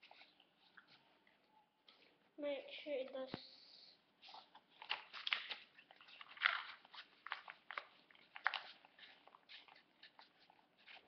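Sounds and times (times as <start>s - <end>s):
paper crinkling and rustling: 4.2s - 11.0s.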